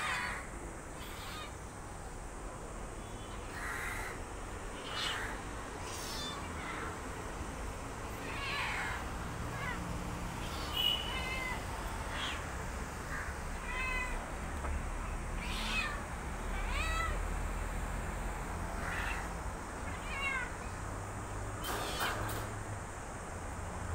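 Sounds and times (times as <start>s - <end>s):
kittens meowing: 0.0s - 0.4s, 1.0s - 1.6s, 3.3s - 7.0s, 8.1s - 12.5s, 13.1s - 14.2s, 15.3s - 17.2s, 18.8s - 20.7s.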